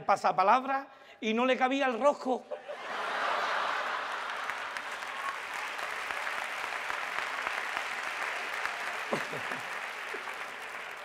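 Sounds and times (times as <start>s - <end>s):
audience applauding: 2.9s - 11.0s.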